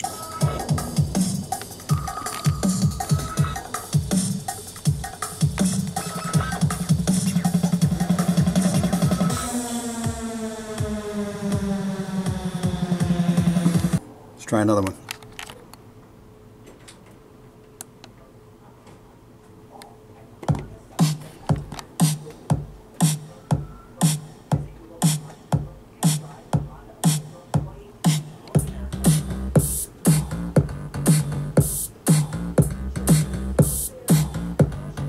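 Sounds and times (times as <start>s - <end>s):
electronic drum beat: 0.0s - 14.0s, 20.5s - 35.0s
deep bass line: 4.9s - 14.0s, 28.6s - 35.0s.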